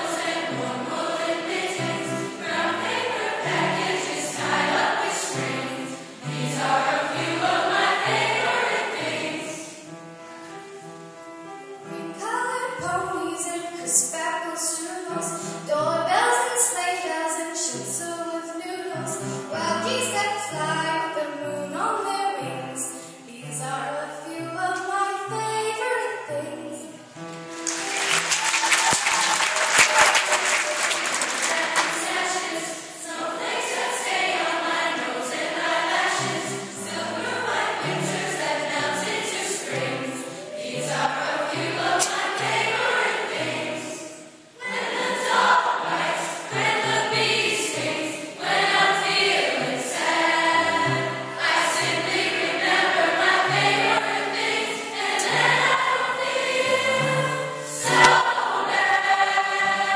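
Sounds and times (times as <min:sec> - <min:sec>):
choir of young voices singing: 0:00.0 - 0:09.9, 0:27.8 - 0:59.9
piano accompaniment: 0:00.0 - 0:14.1, 0:24.4 - 0:59.9.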